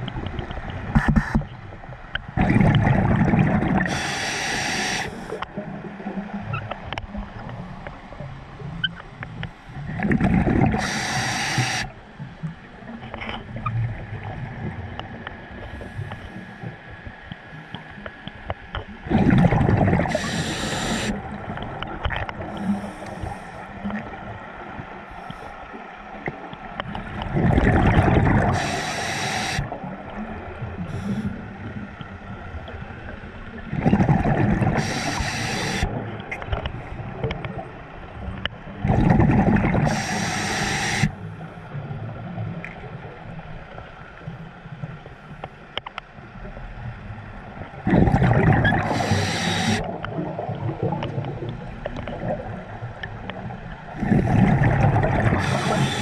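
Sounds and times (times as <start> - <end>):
exhaled air bubbling underwater: 0.0 - 56.0
diver breathing: 3.9 - 5.4, 10.8 - 11.9, 20.1 - 21.2, 22.6 - 23.7, 28.5 - 29.7, 34.8 - 35.9, 39.9 - 41.2, 48.8 - 49.8, 55.3 - 56.0.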